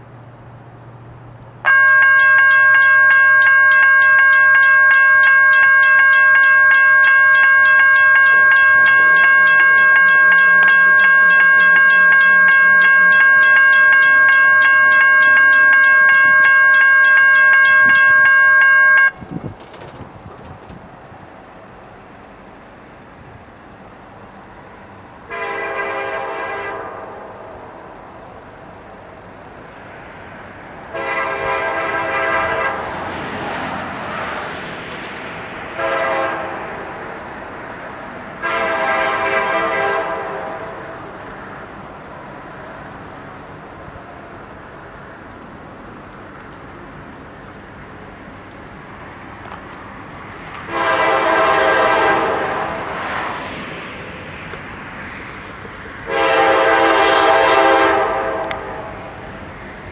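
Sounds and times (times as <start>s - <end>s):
freight train rumbling: 0.0s - 59.9s
locomotive air horn chord: 1.7s - 19.2s, 25.3s - 27.7s, 30.9s - 33.0s, 35.8s - 37.0s, 38.4s - 41.2s, 50.7s - 52.9s, 56.0s - 59.2s.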